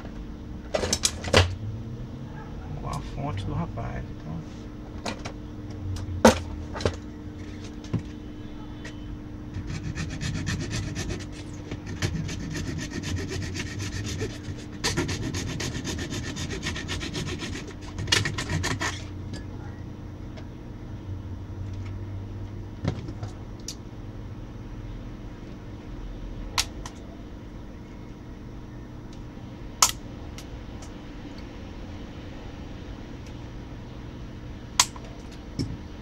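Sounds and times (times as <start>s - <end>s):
tool scraping plastic: 9.6s - 19.1s.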